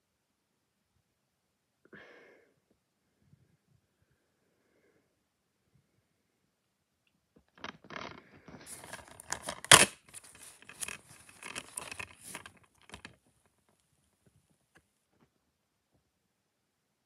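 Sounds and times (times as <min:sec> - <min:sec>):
plastic case rustling and clicking: 0:07.6 - 0:13.6.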